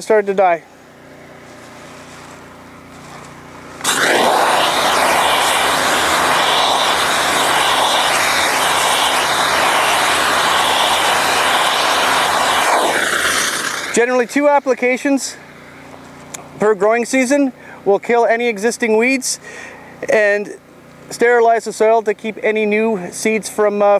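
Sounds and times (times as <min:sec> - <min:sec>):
steam wand spraying hiss: 0:03.8 - 0:14.2.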